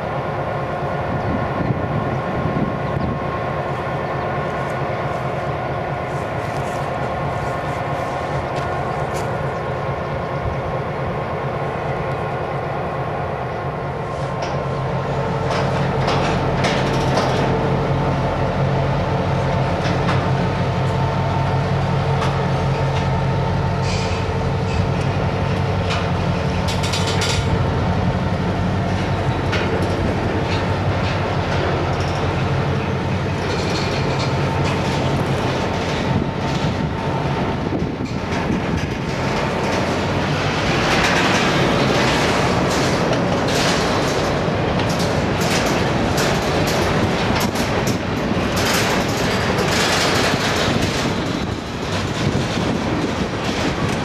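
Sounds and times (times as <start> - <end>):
diesel locomotives idling: 0.0 - 54.0
freight cars rolling on rails: 0.0 - 54.0
metallic wheel noise: 23.7 - 54.0.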